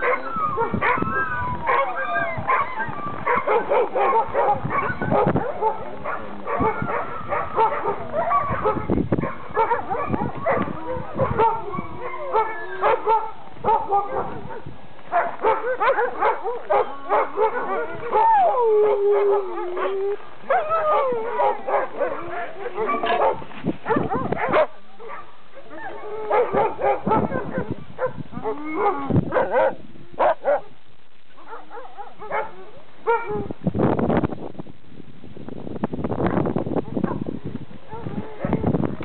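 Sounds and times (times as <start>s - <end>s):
dog howling: 0.0s - 14.4s, 15.3s - 24.6s, 25.6s - 30.4s, 37.9s - 38.7s
dogs barking and yipping: 0.0s - 33.6s, 36.8s - 38.7s.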